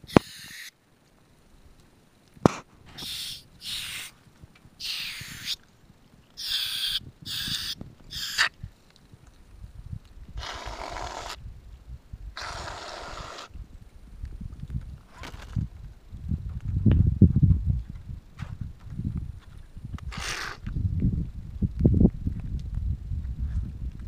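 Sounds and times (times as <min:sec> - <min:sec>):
aerosol can hissing: 0:00.1 - 0:00.7, 0:03.0 - 0:04.1, 0:04.8 - 0:05.6, 0:06.4 - 0:08.4.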